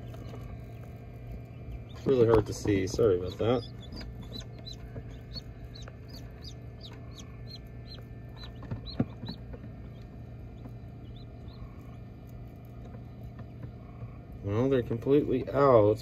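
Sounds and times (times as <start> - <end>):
chicks peeping: 0.0 - 16.0
steady low hum: 0.0 - 16.0.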